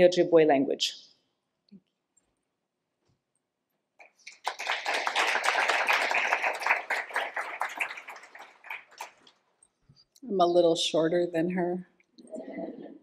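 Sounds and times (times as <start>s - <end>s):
audience applauding: 4.1s - 9.3s.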